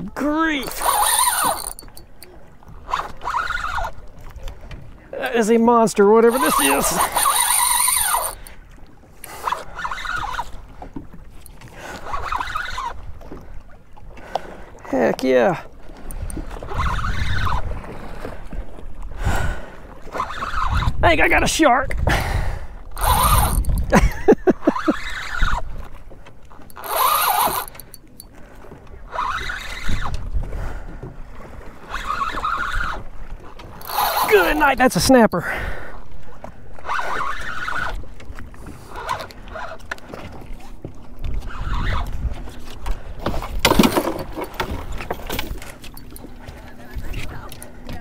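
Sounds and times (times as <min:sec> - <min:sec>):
fishing reel being cranked: 0:00.2 - 0:04.3, 0:05.9 - 0:08.6, 0:09.2 - 0:13.4, 0:15.5 - 0:17.9, 0:20.1 - 0:21.6, 0:22.8 - 0:28.4, 0:29.1 - 0:30.3, 0:31.8 - 0:35.4, 0:36.8 - 0:40.6, 0:41.2 - 0:46.3
fishing line buzzing through drag: 0:00.5 - 0:04.3, 0:06.1 - 0:13.4, 0:15.9 - 0:18.3, 0:20.0 - 0:21.0, 0:22.8 - 0:28.4, 0:29.0 - 0:30.4, 0:31.6 - 0:35.0, 0:35.9 - 0:48.0.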